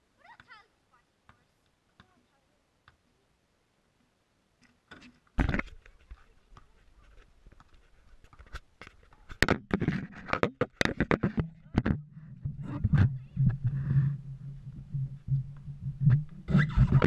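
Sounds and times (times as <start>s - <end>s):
light scraping: 4.6s - 17.0s
sharp knocks and rubs: 4.9s - 17.0s
camera knocking on metal rim: 9.4s - 12.0s.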